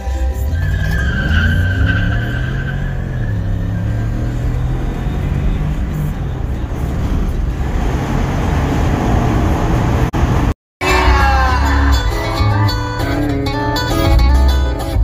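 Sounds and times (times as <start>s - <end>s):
music: 0.0s - 1.3s, 10.8s - 15.0s
truck engine accelerating hard: 0.0s - 10.6s
road noise: 0.0s - 15.0s.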